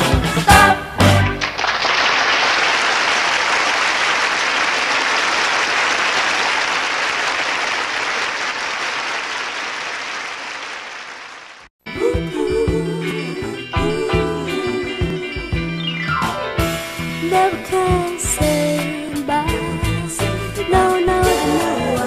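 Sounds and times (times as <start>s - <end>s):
audience applauding and cheering: 1.2s - 11.7s.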